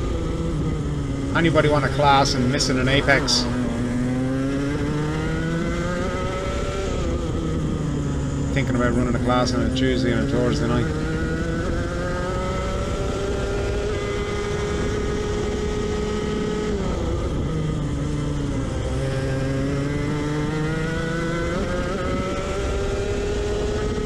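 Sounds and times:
kart engine revving: 0.0s - 24.0s.

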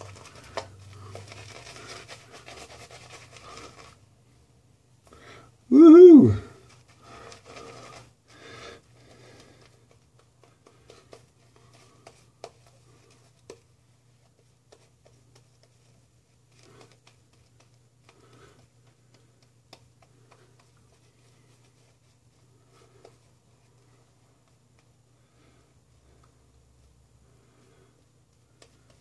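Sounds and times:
bristle scratches and clicks: 0.0s - 4.0s.

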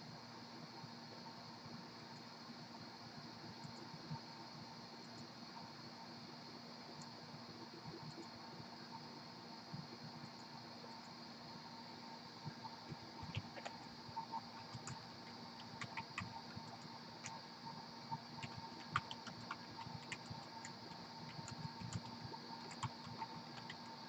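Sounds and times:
faint steady hum: 0.0s - 24.0s
keyboard typing clicks: 12.9s - 17.4s, 18.4s - 23.9s.

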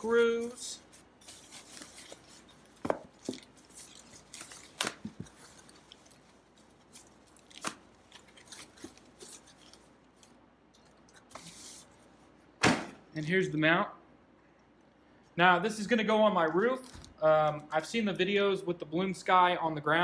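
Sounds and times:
plastic wrapping rustling: 0.0s - 12.1s.

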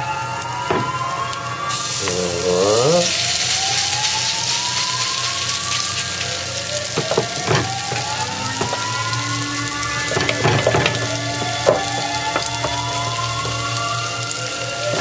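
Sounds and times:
batter sizzling in hot oil: 0.0s - 15.0s
spoon tapping a pan: 6.9s - 9.1s, 10.0s - 14.1s.

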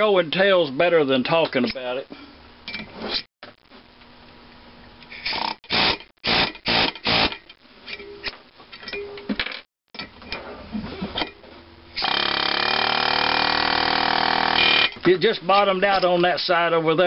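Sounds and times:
pneumatic air hammer: 5.2s - 7.4s, 12.0s - 15.0s.

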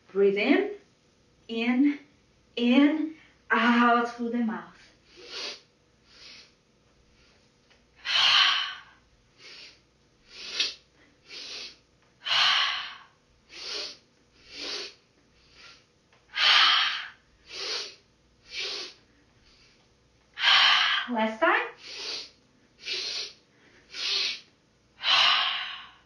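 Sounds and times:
forceful exhale through mouth: 5.1s - 6.6s, 8.0s - 19.8s, 21.8s - 26.0s
short in-breaths: 21.8s - 26.0s.

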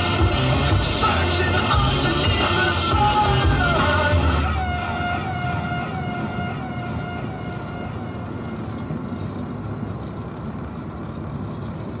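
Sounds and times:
car engine and road noise: 0.0s - 12.0s.

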